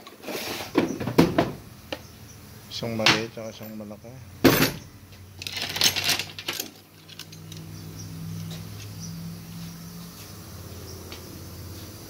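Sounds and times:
steady low hum: 0:00.0 - 0:12.0
metal parts clattering on workbench: 0:04.4 - 0:04.8, 0:05.4 - 0:07.6.

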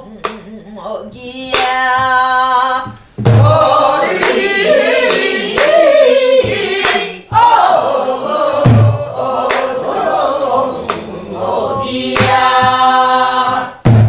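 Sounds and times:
voices singing folk song: 0:00.0 - 0:13.9
deep barrel drum beats: 0:01.7 - 0:09.6, 0:11.6 - 0:14.0.

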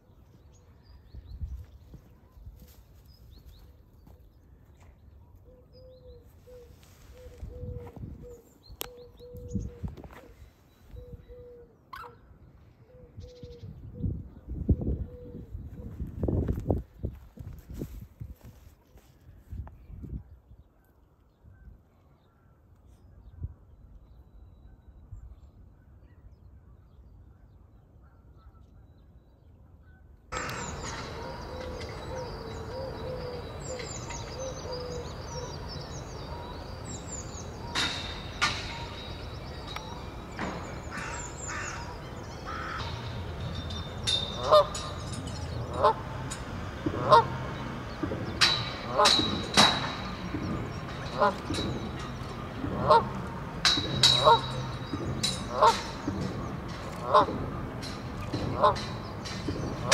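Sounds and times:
geese honking loudly: 0:30.4 - 0:43.4, 0:44.0 - 0:59.9
small birds chirping: 0:30.4 - 0:59.9.

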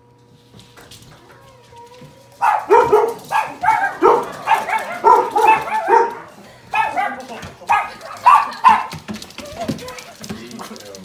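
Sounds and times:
dog yelping and whining: 0:01.3 - 0:10.0.

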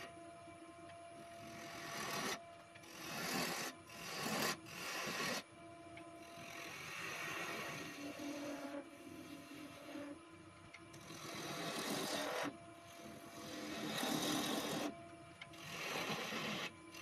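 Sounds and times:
gouge cutting spinning wood: 0:01.4 - 0:05.4, 0:06.2 - 0:10.2, 0:10.9 - 0:14.9, 0:15.5 - 0:17.0
wood lathe running: 0:01.4 - 0:05.4, 0:06.2 - 0:10.1, 0:10.9 - 0:14.9, 0:15.5 - 0:17.0.

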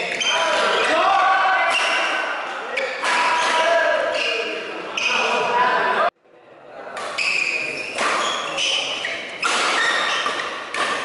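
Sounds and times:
rackets hitting shuttlecock: 0:07.9 - 0:11.0.

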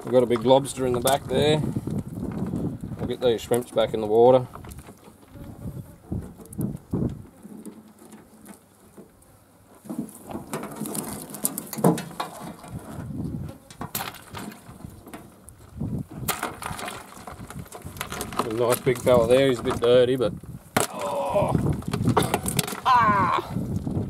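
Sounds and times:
crayfish tapping and rustling: 0:00.0 - 0:05.6, 0:09.8 - 0:23.0.

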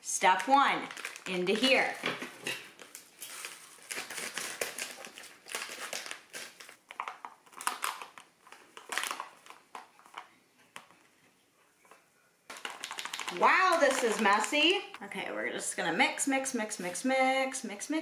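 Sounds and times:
foil pouch crinkling: 0:00.8 - 0:01.9, 0:02.7 - 0:10.8, 0:12.5 - 0:14.8.

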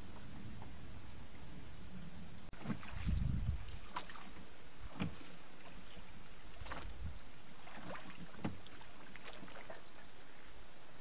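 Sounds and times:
wind on microphone: 0:01.7 - 0:04.2, 0:06.5 - 0:07.3.

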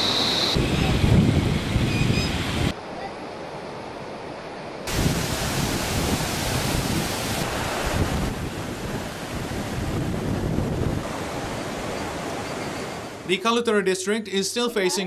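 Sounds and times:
wind noise: 0:00.0 - 0:02.8, 0:04.9 - 0:12.3
floodwater rushing: 0:04.9 - 0:13.3.

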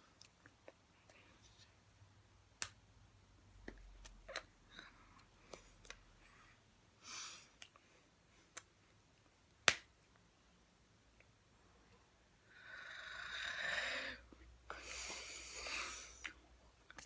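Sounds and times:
hands clapping and tapping: 0:09.6 - 0:09.9.

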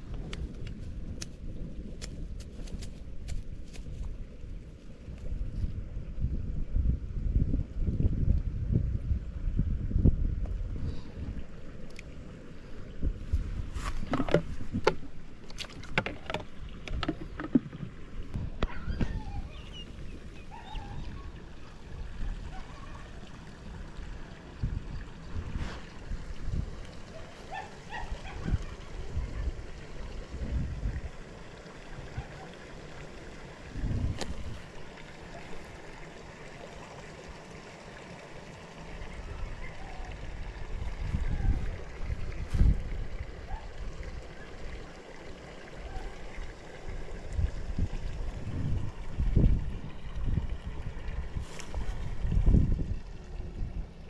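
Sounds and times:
wind rumble on microphone: 0:00.0 - 0:31.3, 0:33.6 - 0:35.7, 0:39.0 - 0:44.8, 0:45.8 - 0:54.0
plastic bucket lid knocks and clicks: 0:14.0 - 0:17.8.

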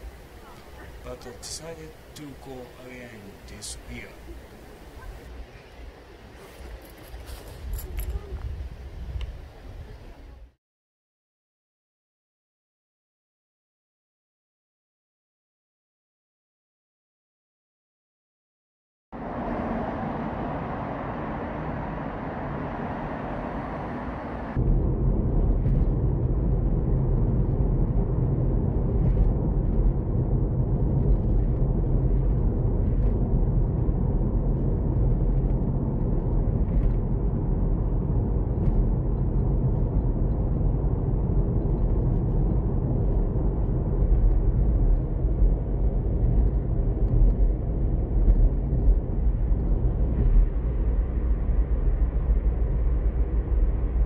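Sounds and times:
car cabin road rumble: 0:00.0 - 0:10.5, 0:19.2 - 0:54.0
steady outdoor hiss: 0:00.0 - 0:10.5.

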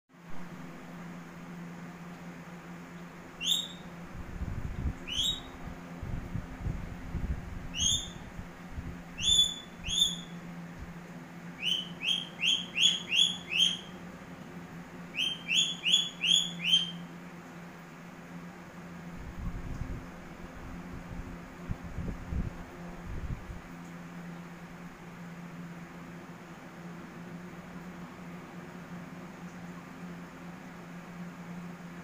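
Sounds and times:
steady low hum: 0:00.1 - 0:32.0
parakeet shrill calls: 0:03.4 - 0:03.9, 0:05.1 - 0:05.6, 0:07.7 - 0:08.2, 0:09.2 - 0:10.4, 0:11.6 - 0:14.0, 0:15.1 - 0:17.1.

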